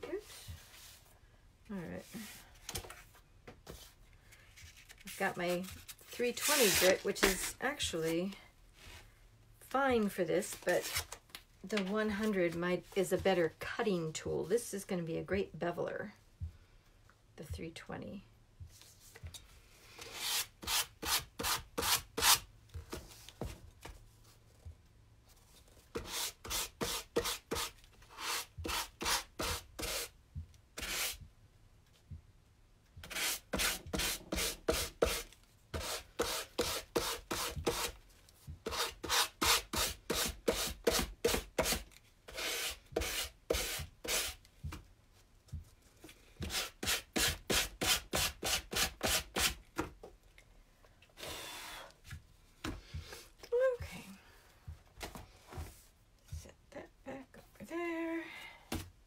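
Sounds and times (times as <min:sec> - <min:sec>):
sandpaper rasping on wood: 0:30.8 - 0:31.2, 0:33.1 - 0:35.2, 0:38.7 - 0:44.4.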